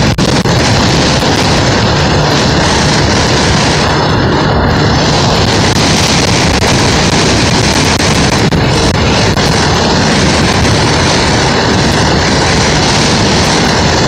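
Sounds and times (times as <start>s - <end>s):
engine and road noise: 0.0s - 14.0s
wind rushing over microphone: 0.0s - 14.0s.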